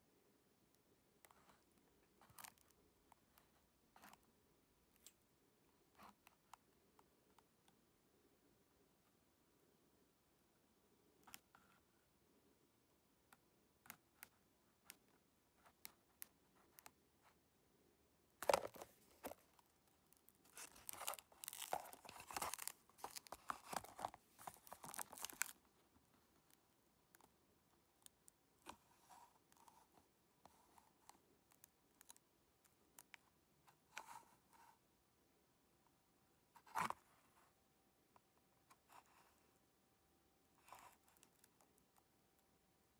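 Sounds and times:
cardboard and paper rustling: 18.4 - 19.6, 20.4 - 25.8.

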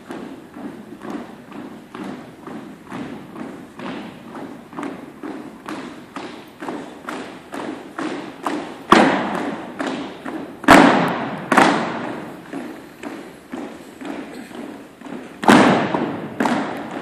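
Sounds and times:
loud foot stamps: 0.0 - 17.0
marching footsteps on wooden floor: 0.0 - 17.0.

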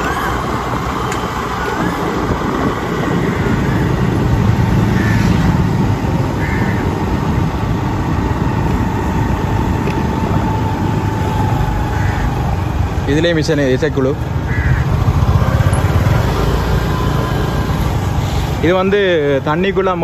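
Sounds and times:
wind rumble on microphone: 0.0 - 13.1
motorbike engine running: 0.0 - 18.1
crow cawing: 4.8 - 5.5, 6.3 - 7.1, 11.7 - 12.8, 14.4 - 15.3.

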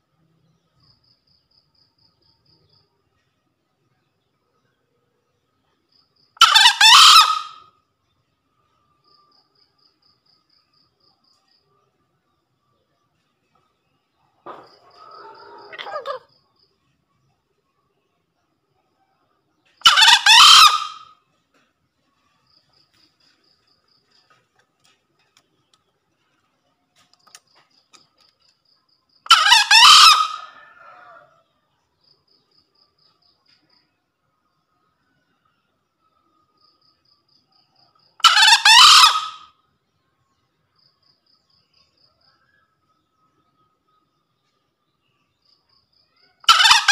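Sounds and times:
rooster crowing: 14.5 - 16.2, 29.3 - 31.4.

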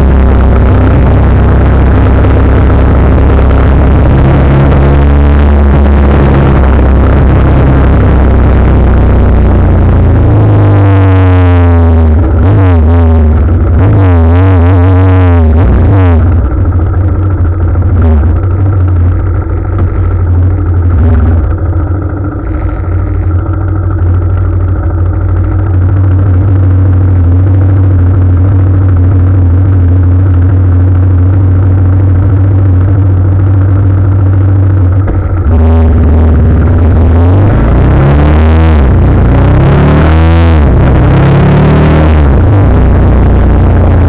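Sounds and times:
motorcycle engine drone: 0.0 - 44.0.

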